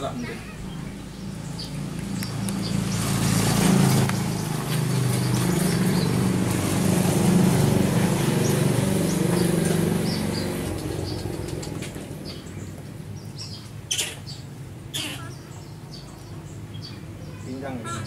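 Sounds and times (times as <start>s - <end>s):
engine humming: 0.0s - 18.0s
birds chirping faintly: 8.3s - 18.0s.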